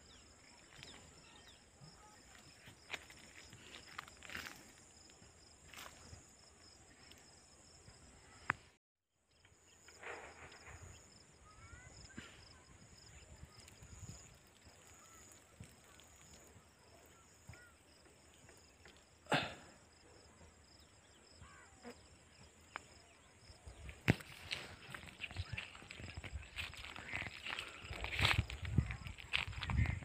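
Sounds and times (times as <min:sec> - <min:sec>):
high-pitched insect chorus: 0:00.1 - 0:08.5, 0:20.6 - 0:30.0.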